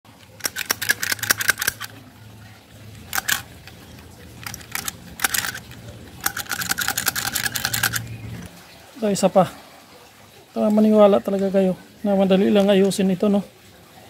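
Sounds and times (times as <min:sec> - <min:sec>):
rivet gun metallic clicking: 0:00.4 - 0:02.0, 0:03.0 - 0:08.1.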